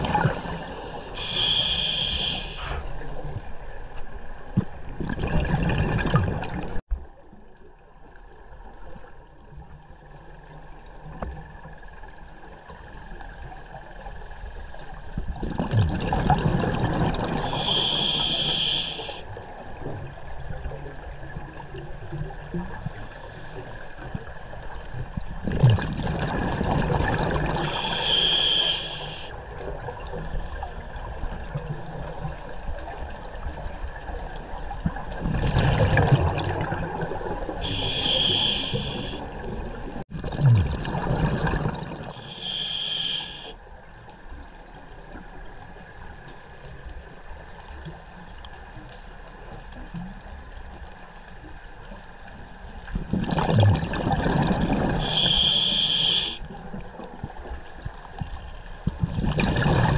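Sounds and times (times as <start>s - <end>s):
regulator hiss: 1.2s - 2.7s, 17.5s - 19.2s, 27.6s - 29.3s, 37.6s - 39.2s, 42.2s - 43.5s, 55.0s - 56.4s
bubbling exhaled air underwater: 4.6s - 6.8s, 15.3s - 19.2s, 25.4s - 29.3s, 34.8s - 43.4s, 53.0s - 56.4s, 58.9s - 59.9s.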